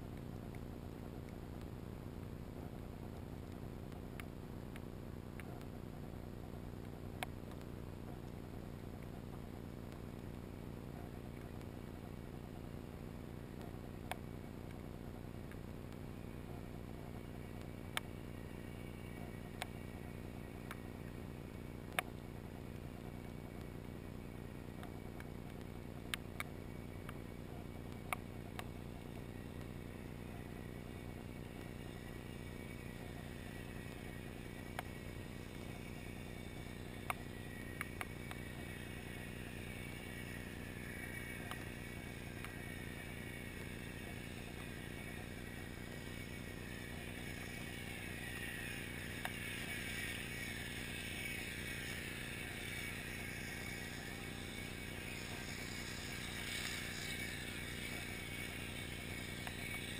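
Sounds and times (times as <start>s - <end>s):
underwater low drone: 15.4s - 59.9s.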